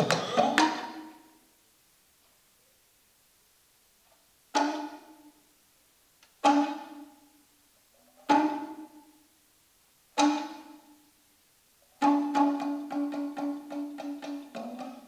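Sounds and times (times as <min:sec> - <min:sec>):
talking drum struck with stick: 0:00.0 - 0:01.2, 0:12.0 - 0:15.0.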